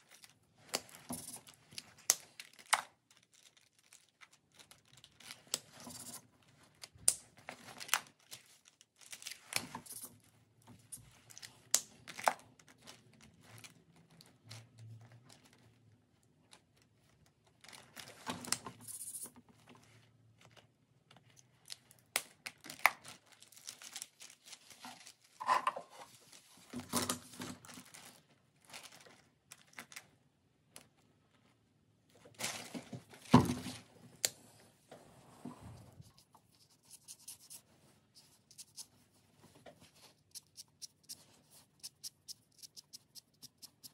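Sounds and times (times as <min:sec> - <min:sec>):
marker scratching on paper: 0:36.1 - 0:37.6, 0:38.2 - 0:39.0, 0:40.1 - 0:43.9.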